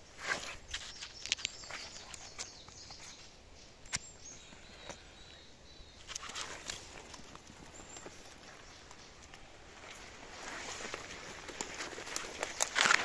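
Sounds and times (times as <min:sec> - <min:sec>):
footsteps crunching dry leaves: 0:06.2 - 0:13.0.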